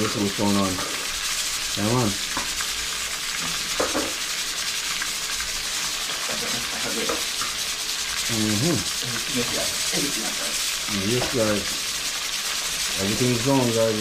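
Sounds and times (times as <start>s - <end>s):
fish sizzling in hot oil: 0.0s - 14.0s.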